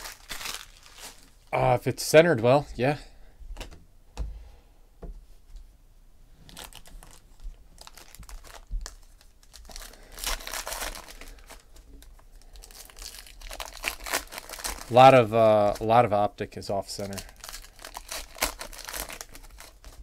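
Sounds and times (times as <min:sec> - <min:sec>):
foil pack wrapper tearing: 0:00.0 - 0:01.3, 0:07.8 - 0:16.0, 0:17.0 - 0:20.0.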